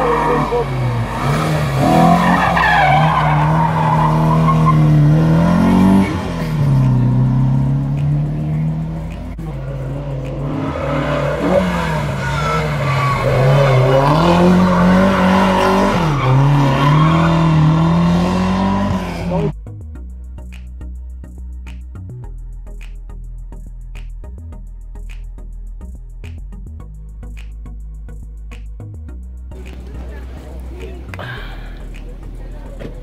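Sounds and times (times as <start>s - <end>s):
tyres squealing: 0.0s - 6.8s, 10.4s - 19.5s
race car engines revving: 0.0s - 19.6s, 29.6s - 33.0s.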